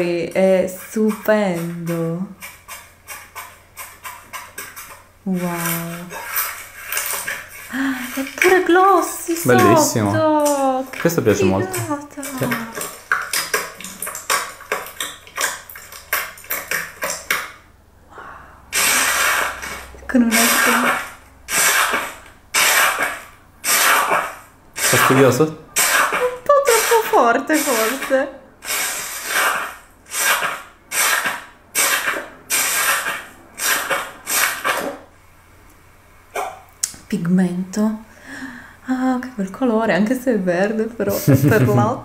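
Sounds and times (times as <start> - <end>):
slime pressed with hissing crackle: 18.7 - 35.1.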